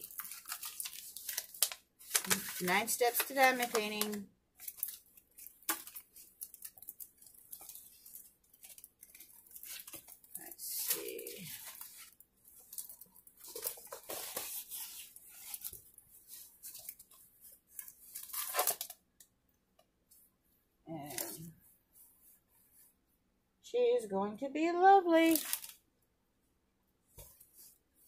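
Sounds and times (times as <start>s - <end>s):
canvas and plastic film rustling: 0.0s - 19.0s, 21.1s - 23.0s, 25.1s - 25.8s.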